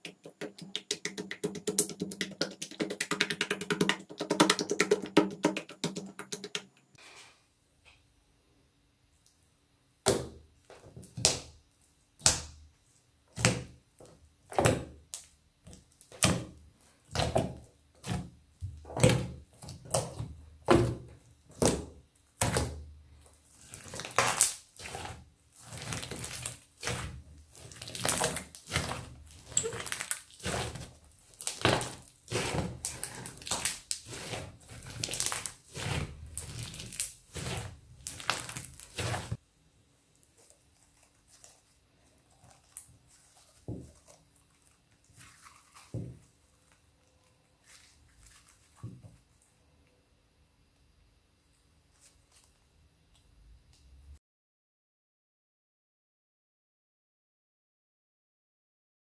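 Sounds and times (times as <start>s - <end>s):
slime squishing: 13.3s - 39.4s, 40.1s - 49.2s.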